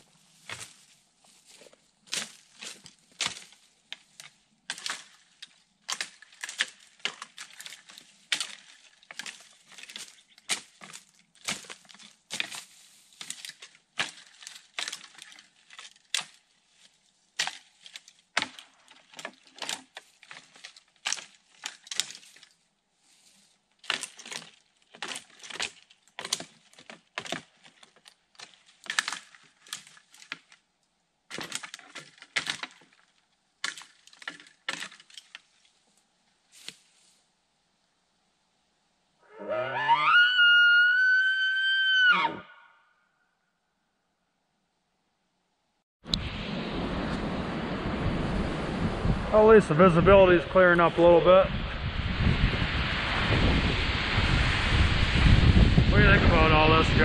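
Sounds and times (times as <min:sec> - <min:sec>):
dry twigs crackling and snapping: 0:00.4 - 0:36.9.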